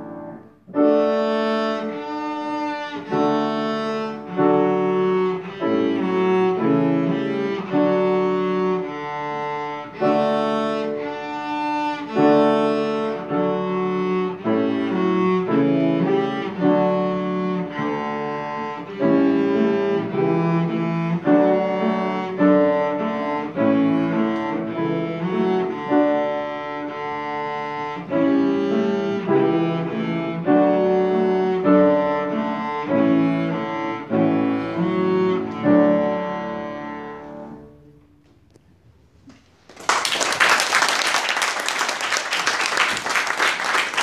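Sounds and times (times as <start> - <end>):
cello and piano duet: 0.0 - 38.6
audience applause: 39.6 - 44.0.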